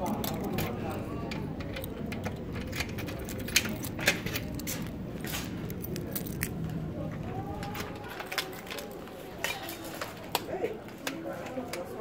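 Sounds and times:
keys jangling: 0.0 - 6.7.

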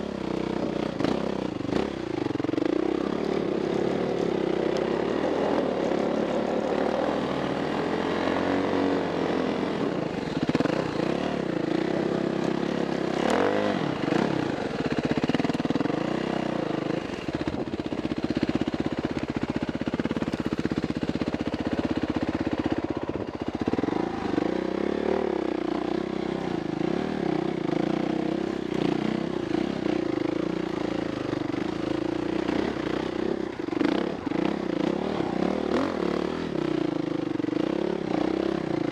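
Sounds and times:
dirt bike engine revving: 0.0 - 18.7, 23.4 - 38.9.

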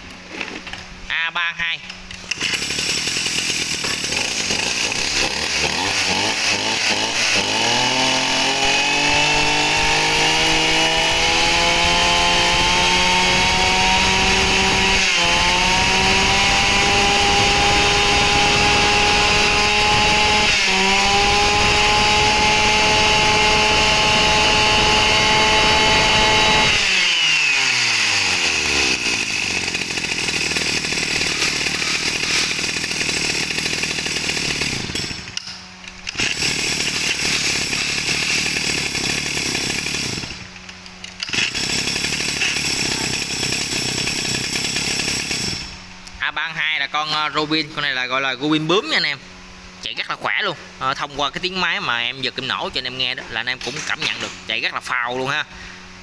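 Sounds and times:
brush cutter engine revving: 2.2 - 45.8.

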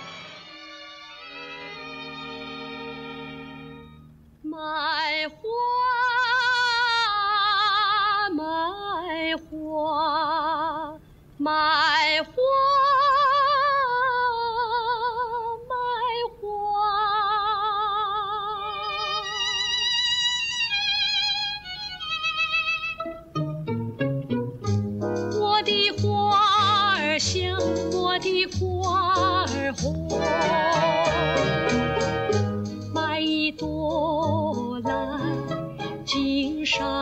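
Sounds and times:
orchestral strings: 0.0 - 4.4, 18.6 - 28.0, 29.2 - 33.3, 34.1 - 37.0
woman singing opera: 4.5 - 20.5, 25.4 - 31.7, 32.9 - 35.5, 36.1 - 37.0.

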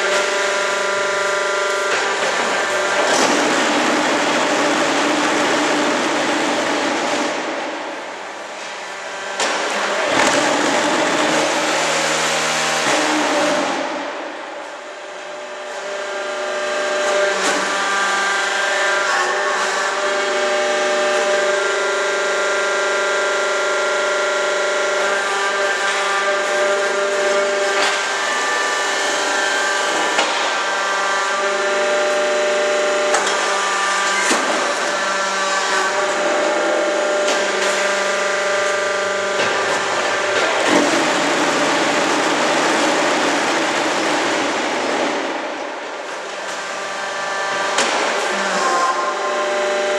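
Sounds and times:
loud harsh machine noise: 0.0 - 49.9
machine hum with held tones: 0.0 - 49.9.

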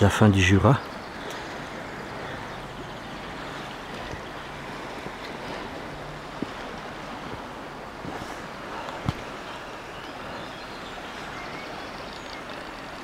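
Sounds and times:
river water rushing: 0.0 - 13.0
wind on microphone: 0.7 - 13.0.

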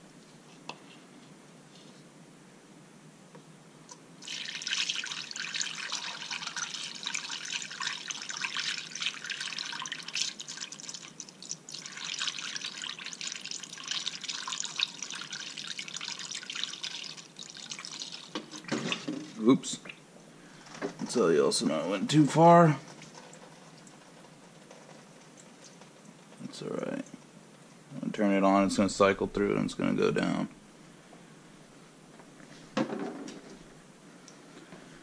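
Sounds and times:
liquid pouring through funnel: 4.2 - 19.5, 22.8 - 26.6.

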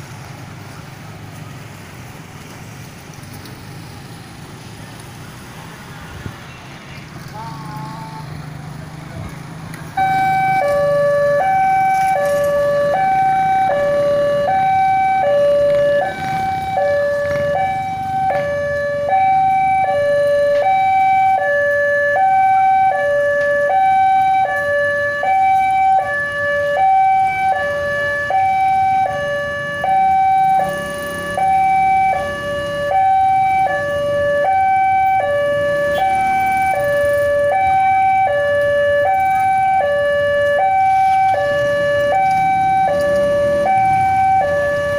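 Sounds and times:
traffic rumble: 0.0 - 44.9
level crossing alarm two tones: 10.0 - 24.5.

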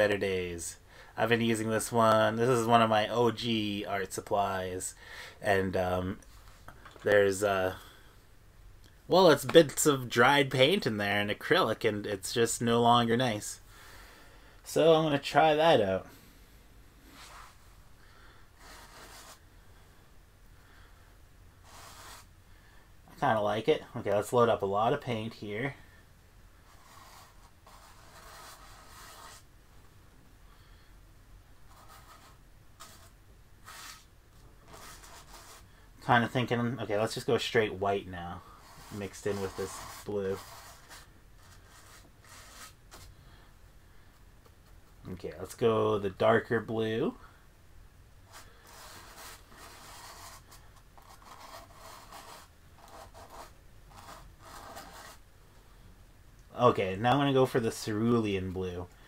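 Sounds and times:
brush stroking paint on canvas: 17.1 - 17.7, 18.6 - 19.4, 21.6 - 22.3, 26.6 - 29.5, 31.7 - 35.7, 38.5 - 43.1, 48.3 - 55.2.

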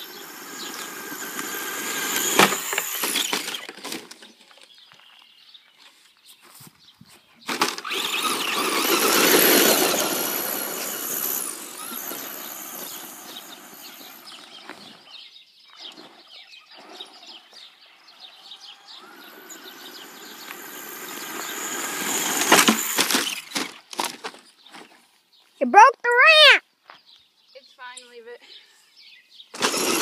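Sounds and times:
toy truck motor whining: 0.0 - 4.1, 7.5 - 15.0, 17.1 - 23.8, 29.5 - 30.0
tyres on gravel: 0.1 - 6.6, 7.4 - 25.5, 29.6 - 30.0.

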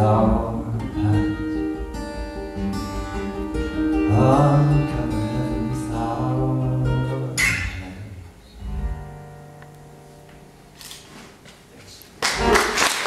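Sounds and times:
person singing: 0.0 - 8.2
acoustic guitar: 0.0 - 13.0.

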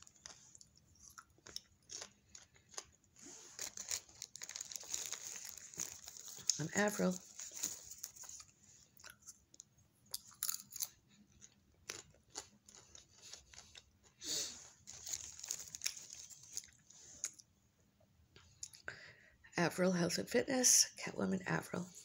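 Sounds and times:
person chewing apple: 0.0 - 6.6, 8.0 - 17.5.

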